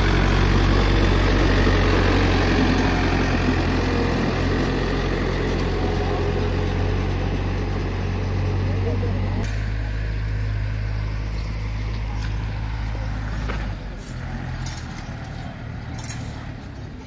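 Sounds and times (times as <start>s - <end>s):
tractor engine droning: 0.0s - 17.0s
rake scraping gravel: 9.5s - 17.0s.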